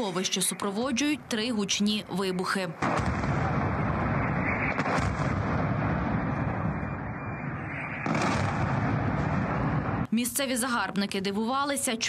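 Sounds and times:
sharp crack: 2.8s - 6.6s, 8.0s - 9.6s
distorted explosion rumble: 2.8s - 10.1s.

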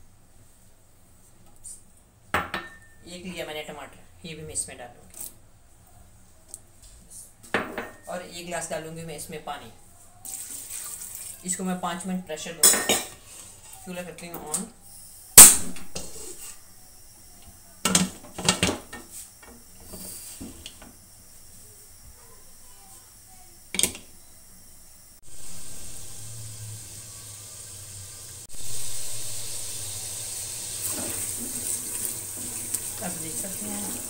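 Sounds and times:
onions sizzling: 10.2s - 11.7s, 14.9s - 17.2s, 19.1s - 24.2s, 25.1s - 34.0s
steady hiss: 19.0s - 34.0s.

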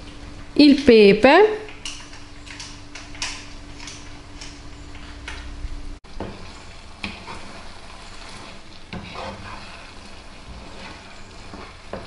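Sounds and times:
rice bubbling low sizzle: 0.0s - 0.6s, 1.6s - 12.0s
wooden spoon scraping a pan: 6.1s - 12.0s.

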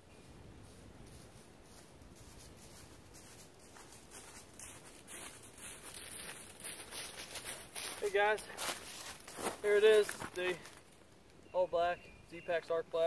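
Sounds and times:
footsteps crunching dry leaves: 0.6s - 11.0s.

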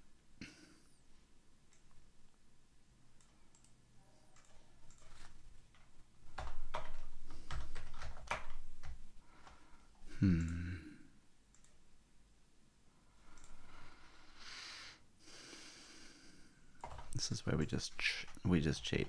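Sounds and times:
computer keyboard typing: 4.4s - 9.6s, 16.8s - 19.0s
low voiced grunt: 10.1s - 11.1s.

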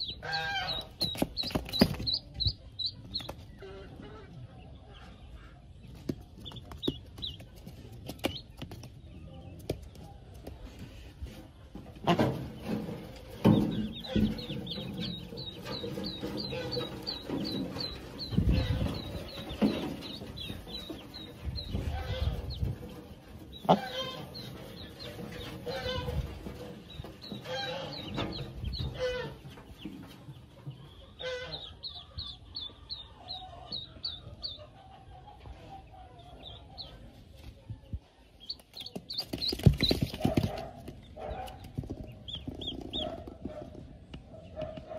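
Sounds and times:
ducklings peeping: 0.0s - 44.9s.

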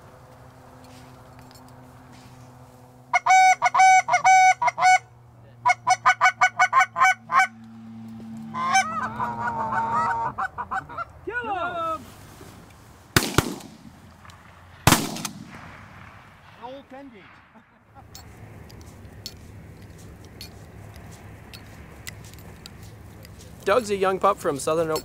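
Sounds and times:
goose honking: 3.1s - 7.8s, 8.4s - 11.2s
shotgun shots: 13.2s - 17.7s.

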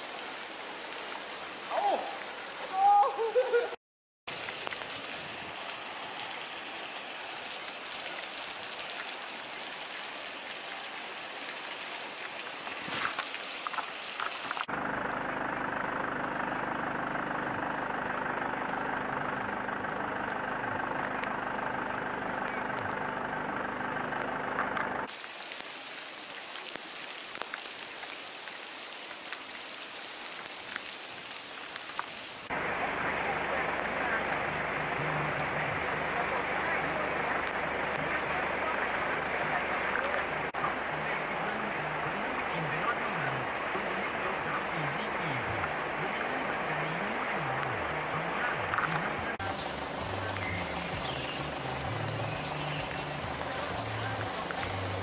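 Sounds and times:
floodwater rushing: 0.0s - 55.0s
steady rain: 0.0s - 55.0s.

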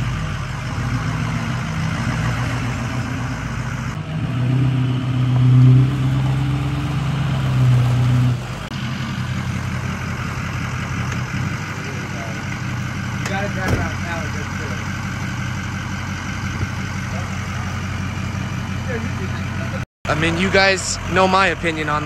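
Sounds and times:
diesel truck engine idling: 0.0s - 4.6s, 6.0s - 22.0s.

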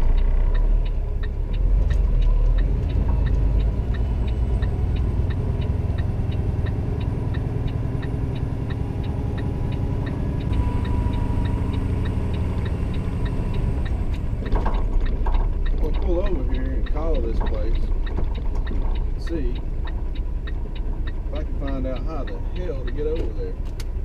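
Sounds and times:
truck diesel engine drone: 0.0s - 24.0s
turn signal ticking: 0.0s - 24.0s.

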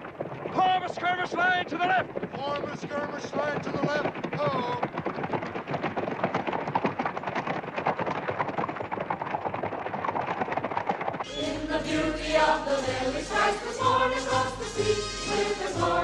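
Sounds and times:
horses galloping: 0.0s - 16.0s
choir singing: 11.3s - 16.0s.

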